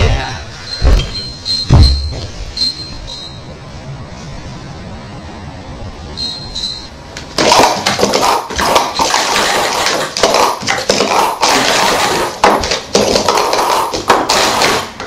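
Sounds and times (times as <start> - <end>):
plastic cups clacking: 7.2 - 15.0.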